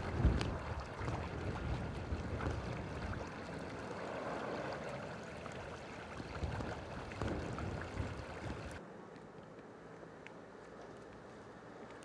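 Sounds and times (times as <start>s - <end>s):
water gushing and bubbling: 0.0s - 8.8s.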